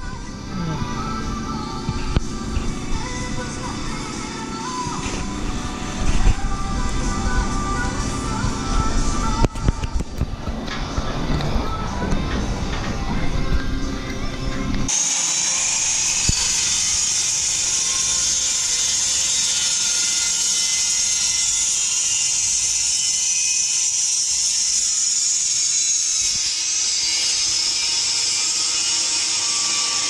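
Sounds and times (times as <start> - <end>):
chop saw cutting steel pipe: 14.9 - 30.0.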